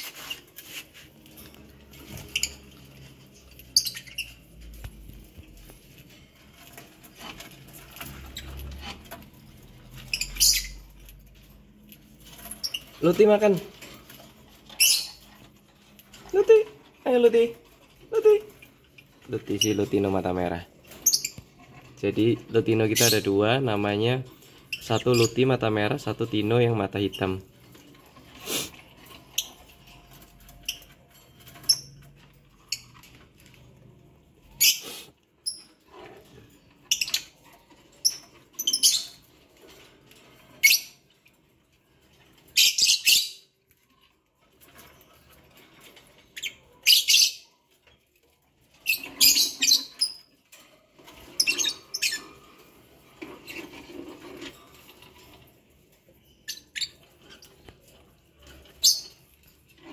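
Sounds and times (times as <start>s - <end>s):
lovebirds giving shrill calls: 3.5s - 4.4s, 10.0s - 10.8s, 14.7s - 15.2s, 21.0s - 21.4s, 34.6s - 35.6s, 38.0s - 39.2s, 40.6s - 41.0s, 42.6s - 43.5s, 46.4s - 47.5s, 48.8s - 50.3s, 51.4s - 52.3s, 58.8s - 59.2s.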